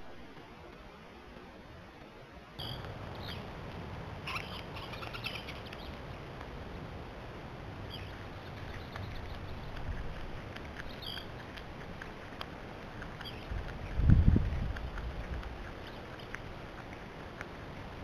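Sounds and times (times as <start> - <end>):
outdoor background hiss: 0.0 - 18.0
small birds chirping: 2.6 - 3.6, 4.2 - 6.2, 7.8 - 18.0.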